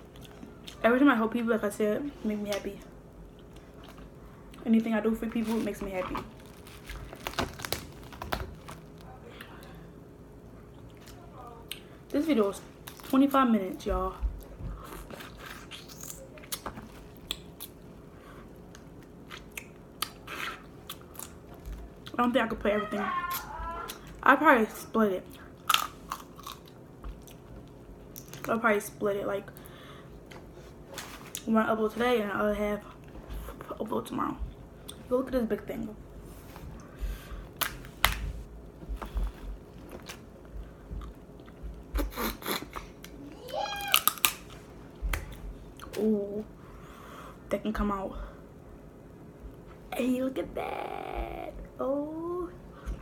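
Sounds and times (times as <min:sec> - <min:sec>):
chewing: 0:00.1 - 0:00.8
crab shell cracking: 0:43.9 - 0:44.5.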